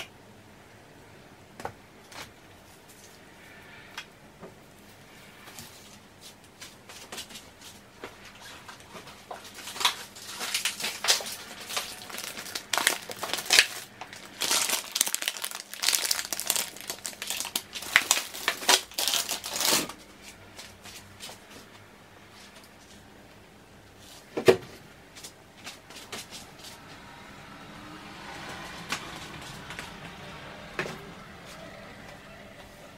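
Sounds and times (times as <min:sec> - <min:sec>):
plastic packaging crinkling: 0:08.4 - 0:20.3.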